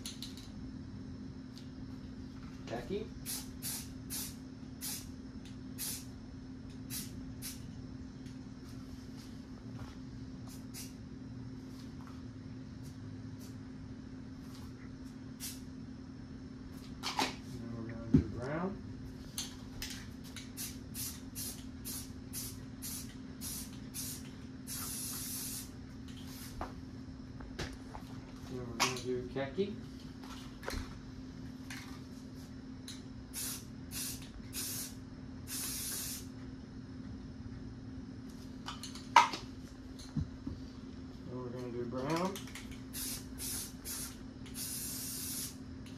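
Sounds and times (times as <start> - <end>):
steady low hum: 0.0 - 45.9
spray can hissing: 3.2 - 5.1, 5.8 - 6.1, 6.9 - 7.6, 20.4 - 25.7, 33.3 - 36.3, 42.8 - 45.6.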